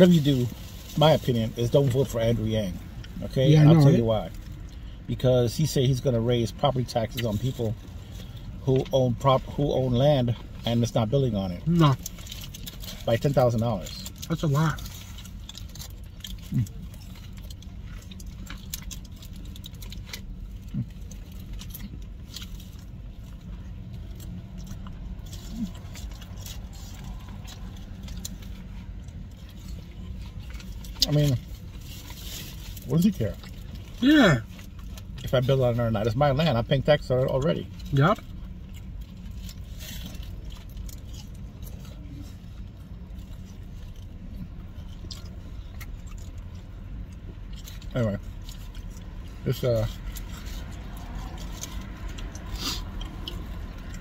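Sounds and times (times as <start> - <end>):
car engine idling: 0.0 - 54.0
steady low hum: 0.0 - 54.0
chewing and mouth sounds: 0.1 - 54.0
sandwich wrapper crinkling: 5.5 - 36.6.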